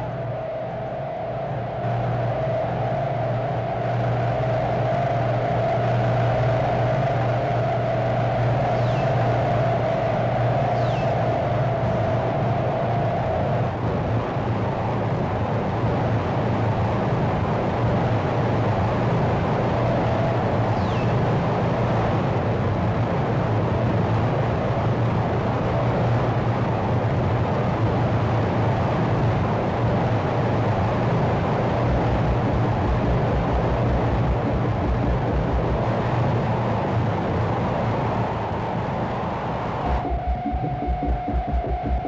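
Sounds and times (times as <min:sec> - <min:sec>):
dense noise drone with low hum: 0:00.0 - 0:42.0
low rapid pulsing: 0:31.6 - 0:42.0.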